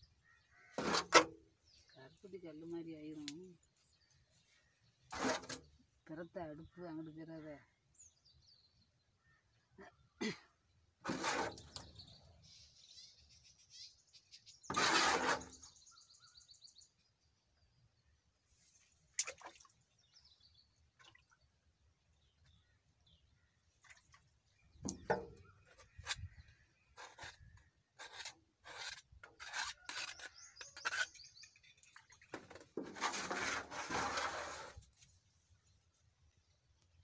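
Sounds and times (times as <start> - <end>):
ladle scraping a metal pan: 0.7 - 1.4, 5.1 - 5.8, 11.0 - 11.9, 14.7 - 15.8, 28.0 - 31.9, 32.8 - 34.8.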